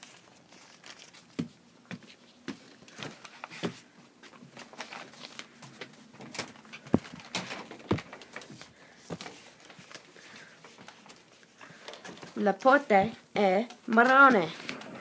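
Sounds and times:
footsteps on wooden floor: 0:01.4 - 0:04.6, 0:06.8 - 0:09.9.

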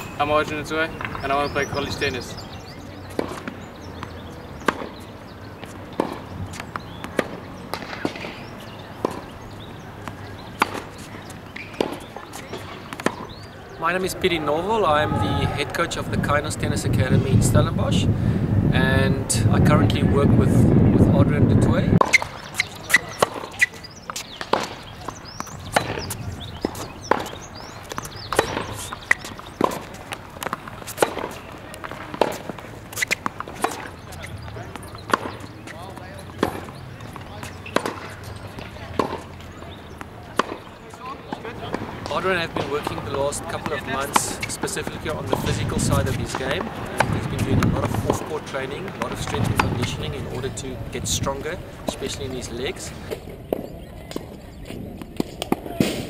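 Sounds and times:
tennis ball pops: 0:22.0 - 0:35.5, 0:36.3 - 0:50.4.

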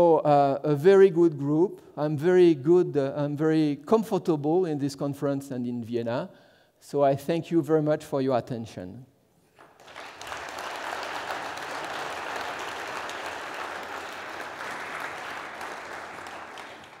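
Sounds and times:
audience applauding: 0:09.6 - 0:17.0.

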